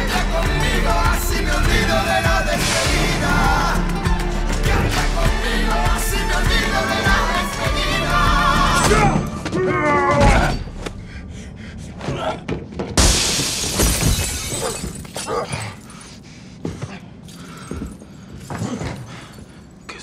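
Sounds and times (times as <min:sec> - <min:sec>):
song with wavering voice: 0:00.0 - 0:11.4
glass breaking: 0:13.0 - 0:15.6.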